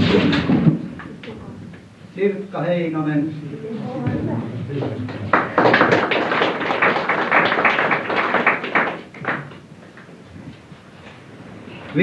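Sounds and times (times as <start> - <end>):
small audience clapping: 4.7 - 10.2.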